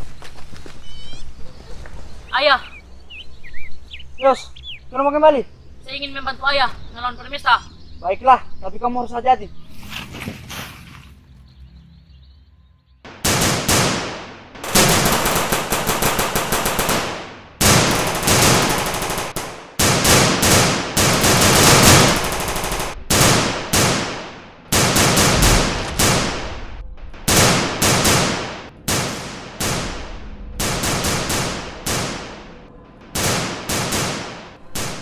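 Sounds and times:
automatic gunfire bursts: 13.1s - 26.4s, 27.3s - 30.0s, 30.6s - 32.5s, 33.1s - 35.0s.

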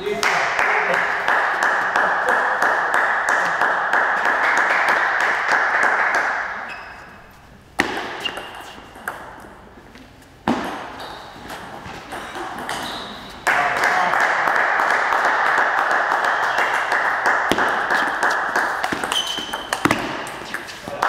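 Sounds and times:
people clapping: 0.0s - 6.7s, 13.4s - 21.0s
table tennis ball knocks: 18.8s - 20.7s.

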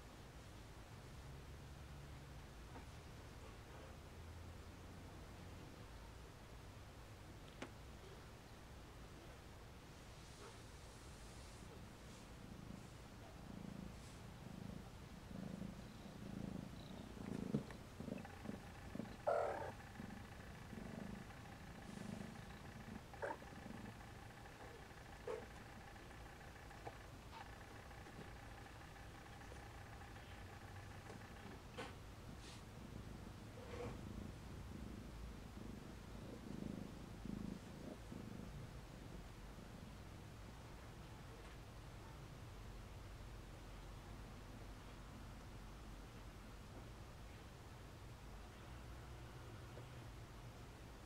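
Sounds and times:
cat purring: 10.2s - 42.1s.

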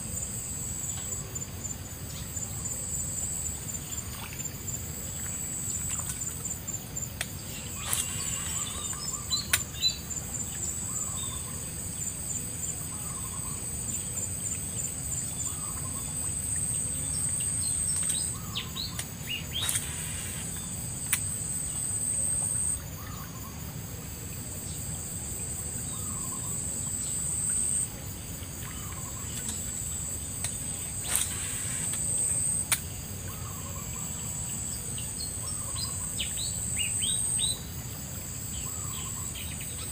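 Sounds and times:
insects droning: 0.0s - 39.9s
sharp clicks: 19.0s - 20.1s, 30.4s - 32.0s.

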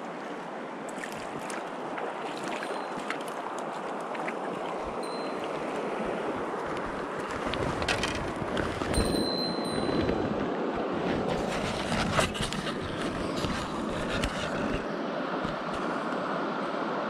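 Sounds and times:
stream rushing over stones: 0.0s - 11.8s.

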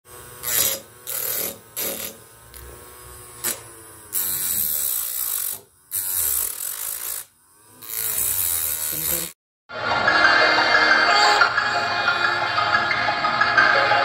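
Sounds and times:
small hobby motor spinning: 0.1s - 9.4s.

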